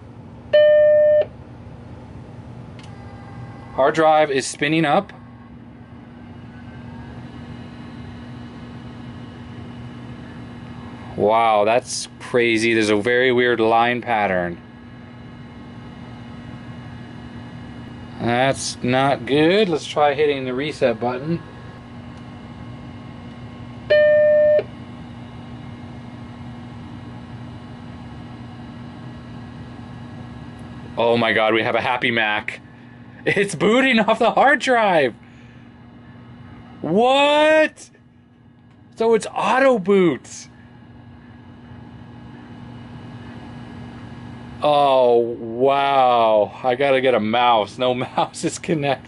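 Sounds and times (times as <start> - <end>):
hard drive hum: 0.0 - 49.0
hard drive whine rising in pitch: 2.8 - 13.5, 14.3 - 31.4
low hum: 14.6 - 30.9.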